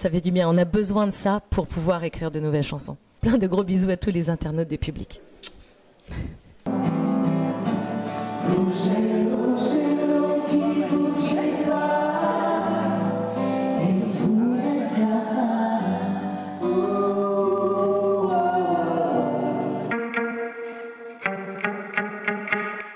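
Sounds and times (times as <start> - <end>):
acoustic guitar: 6.6 - 22.9
group of voices singing: 8.2 - 19.9.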